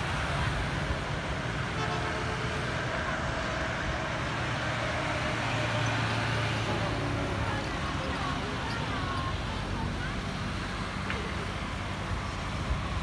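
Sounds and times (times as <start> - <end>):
cars passing: 0.0 - 13.0
hum of engines and tyres: 0.0 - 13.0
motorbikes passing: 0.0 - 13.0
trucks passing: 0.0 - 13.0.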